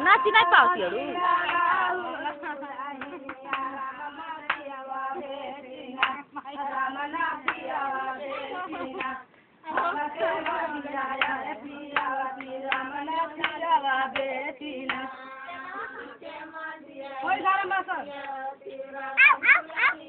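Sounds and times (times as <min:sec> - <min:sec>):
women singing: 0:00.0 - 0:20.0
handclaps keeping time: 0:01.4 - 0:04.8, 0:07.4 - 0:07.8, 0:09.8 - 0:15.1.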